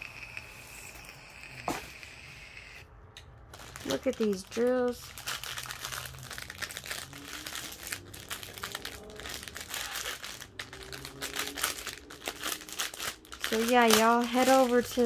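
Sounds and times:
plastic bag crinkling: 0:03.4 - 0:15.0.

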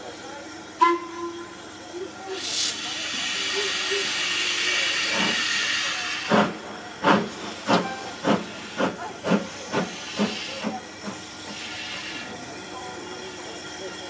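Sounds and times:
steam locomotive exhaust chuffs: 0:02.2 - 0:14.0
steam hiss: 0:02.3 - 0:12.8.

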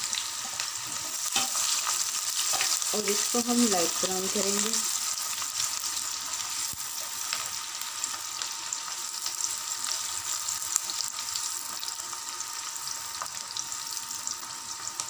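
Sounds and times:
onions sizzling in hot oil: 0:00.0 - 0:15.0.

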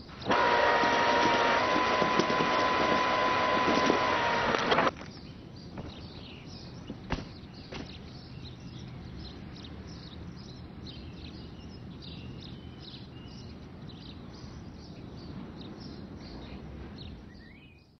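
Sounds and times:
small birds chirping: 0:04.9 - 0:18.0.

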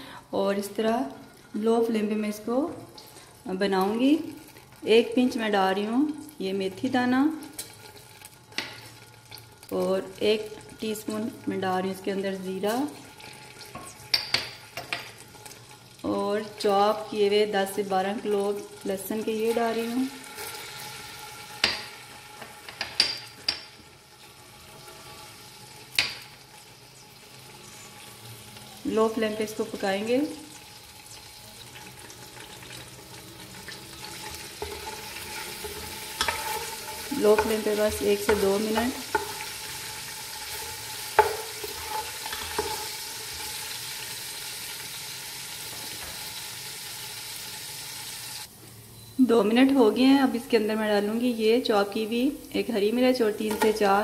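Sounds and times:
spices sizzling in oil: 0:00.1 - 0:54.0
spatula knocking pot: 0:41.1 - 0:42.8.

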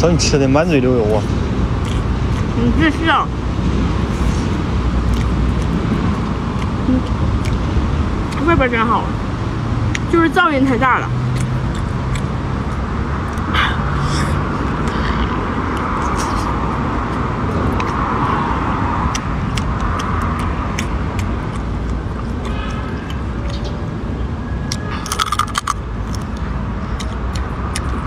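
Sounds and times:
road traffic noise: 0:00.0 - 0:28.0
sucking meat from shells: 0:24.6 - 0:28.0.

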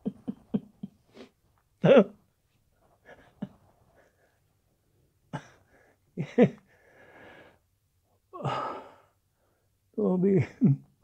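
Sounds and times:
man laughing softly: 0:00.0 - 0:02.1.

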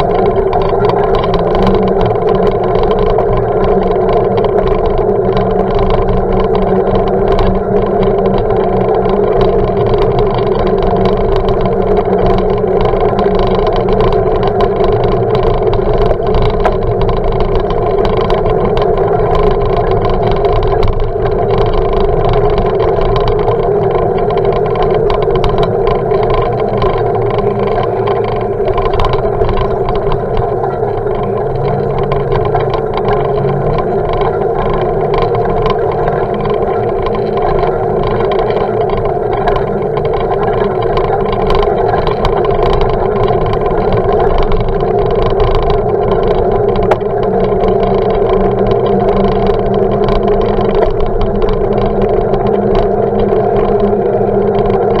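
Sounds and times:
bicycle road rumble: 0:00.0 - 0:55.0
clicks and rattles from bumps: 0:00.0 - 0:55.0.

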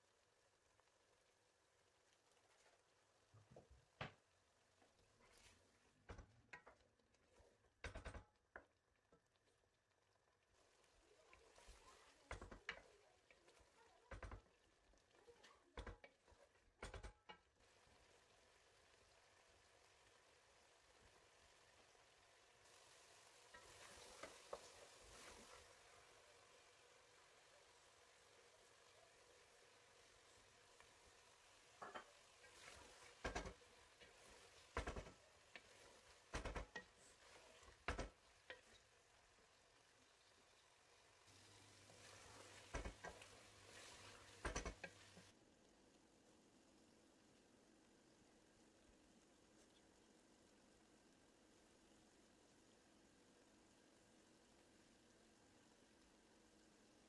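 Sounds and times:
wooden spoon scraping a pot: 0:05.1 - 0:08.0, 0:11.3 - 0:14.6, 0:31.8 - 0:38.9, 0:41.3 - 0:45.3.

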